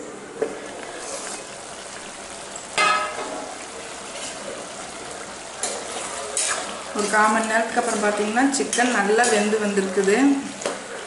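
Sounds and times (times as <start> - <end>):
curry sizzling in a pan: 0.2 - 11.0
metal lid clanking: 2.8 - 3.4.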